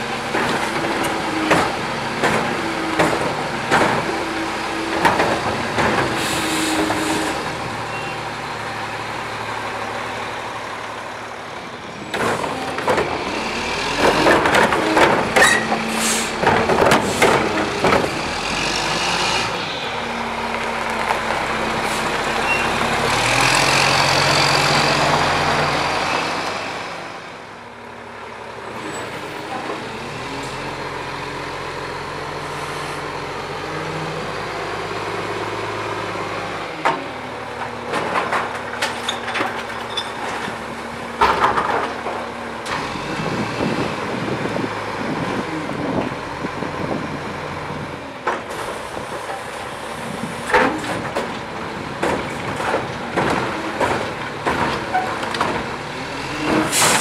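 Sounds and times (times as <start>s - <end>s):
garbage truck engine running: 0.0s - 57.0s
clattering knocks and bangs: 14.0s - 15.8s, 16.4s - 18.2s, 41.2s - 42.2s, 50.5s - 55.8s.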